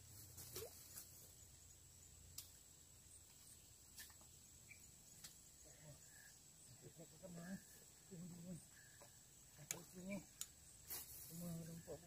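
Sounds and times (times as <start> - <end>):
faint clicks: 9.0 - 10.6.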